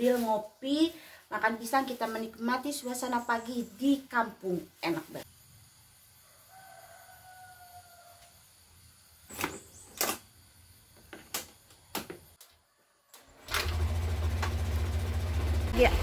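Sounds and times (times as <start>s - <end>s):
sharp ignition clicks: 13.2s - 15.1s
scooter engine starting and idling: 13.2s - 16.0s.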